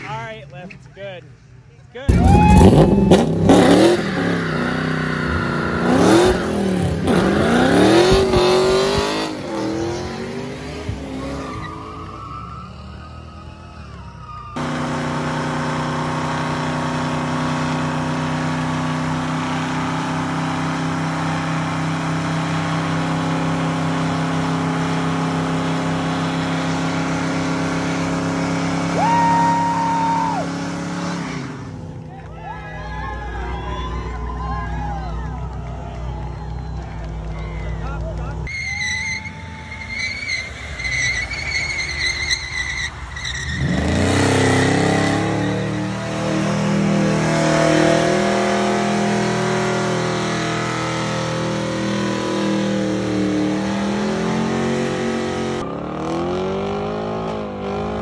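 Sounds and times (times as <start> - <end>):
car engine revving: 2.1 - 32.2, 35.2 - 58.0
tyres squealing: 10.9 - 14.6, 38.5 - 46.4.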